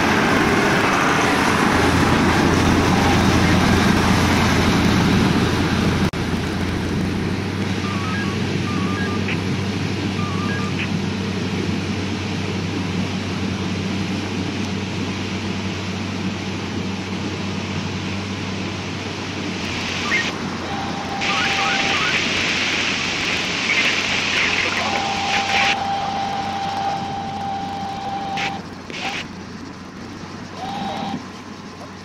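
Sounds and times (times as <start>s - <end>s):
boat engine humming: 0.0s - 32.0s
churning water: 0.0s - 32.0s
thin high tone: 20.0s - 22.6s, 23.6s - 31.6s.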